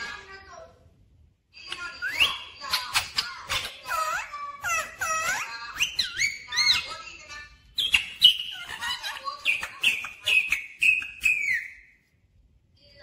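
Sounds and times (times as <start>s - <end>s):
parakeet calling: 1.7s - 12.0s.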